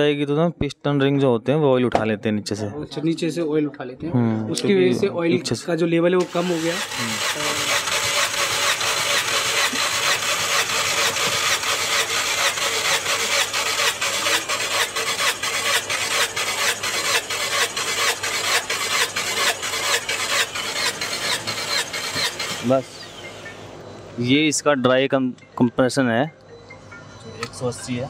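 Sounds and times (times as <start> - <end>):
engine cranking on starter motor: 6.2 - 23.6.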